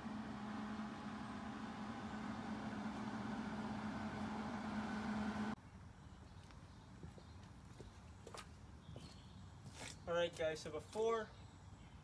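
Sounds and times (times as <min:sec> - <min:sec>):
low machine hum: 0:00.0 - 0:05.6.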